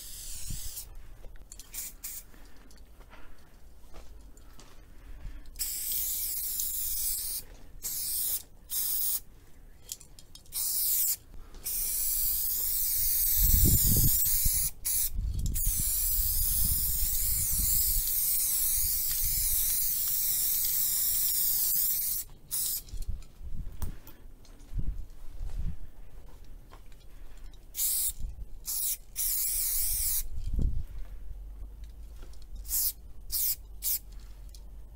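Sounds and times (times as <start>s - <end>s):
spray paint can hissing: 0.0s - 0.9s, 1.6s - 2.2s, 5.6s - 9.2s, 10.5s - 22.9s, 27.8s - 30.3s, 32.6s - 34.0s.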